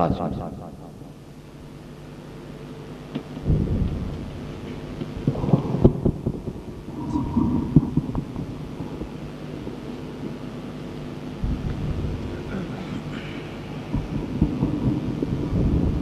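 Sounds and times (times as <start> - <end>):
muffled noise: 0.8 - 16.0
low rumbling thuds: 3.4 - 9.2, 11.4 - 12.5
steady tone: 3.4 - 16.0.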